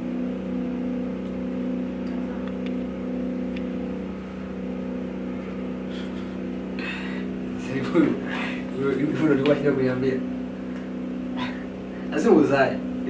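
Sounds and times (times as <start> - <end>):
low hum of held tones: 0.0 - 13.0.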